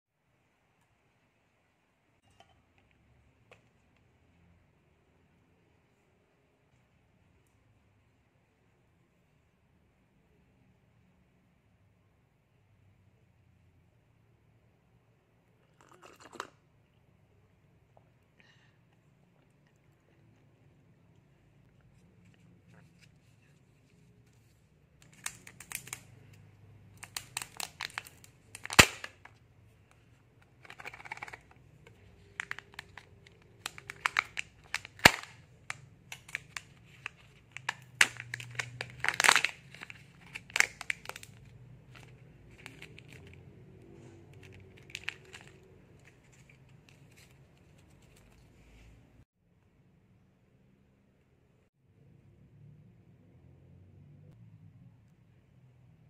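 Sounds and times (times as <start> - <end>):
packaging crinkling and tearing: 25.0 - 29.4, 30.6 - 48.4
sharp plastic snaps: 27.0 - 29.4.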